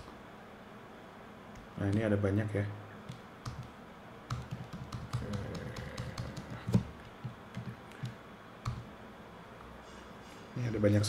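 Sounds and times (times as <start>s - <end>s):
computer keyboard clicks: 3.1s - 3.7s, 4.3s - 8.8s.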